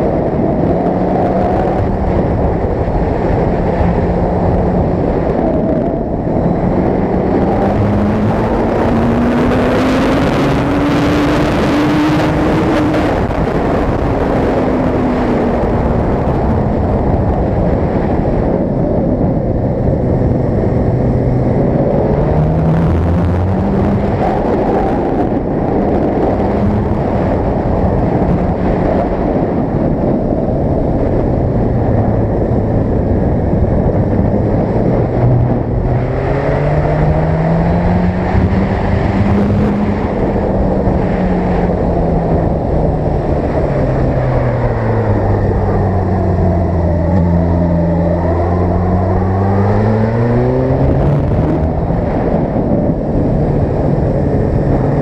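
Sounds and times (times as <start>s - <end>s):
motorcycle engine revving: 0.0s - 18.5s, 30.6s - 55.0s
wind noise rushing: 0.0s - 55.0s.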